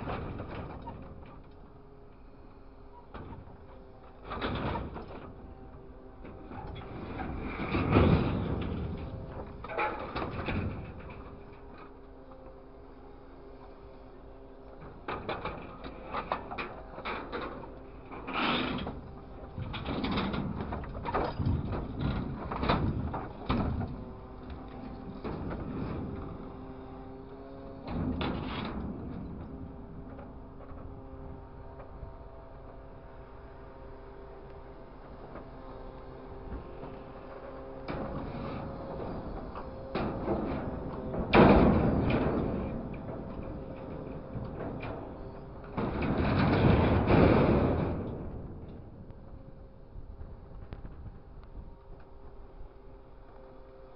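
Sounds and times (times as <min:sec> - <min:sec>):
machine engine and hydraulics hum: 0:00.0 - 0:53.9
metal clanks and scrapes: 0:03.0 - 0:12.0, 0:14.7 - 0:26.7, 0:27.4 - 0:31.0, 0:36.5 - 0:48.9
metal clattering and rattling: 0:15.0 - 0:26.6, 0:36.6 - 0:49.1.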